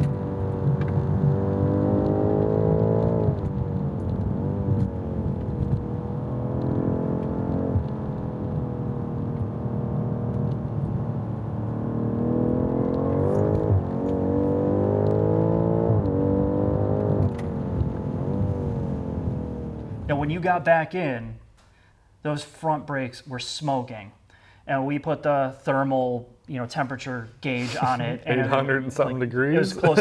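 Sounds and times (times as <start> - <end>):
car engine revving: 0.0 - 20.3.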